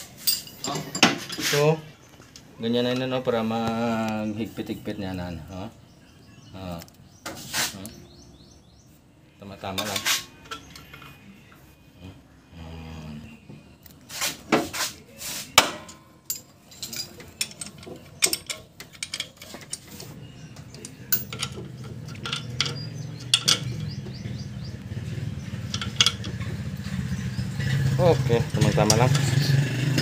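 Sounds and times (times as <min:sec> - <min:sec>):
metal tools clicking and clinking: 0:00.2 - 0:01.7, 0:09.8 - 0:11.2, 0:15.8 - 0:24.0, 0:25.7 - 0:26.6.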